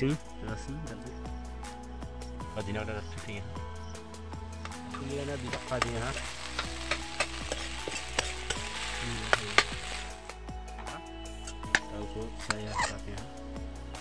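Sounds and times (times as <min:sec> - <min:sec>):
spoon stirring and scraping: 0:04.7 - 0:10.2, 0:12.4 - 0:13.0
potato sizzling in oil: 0:04.7 - 0:10.3.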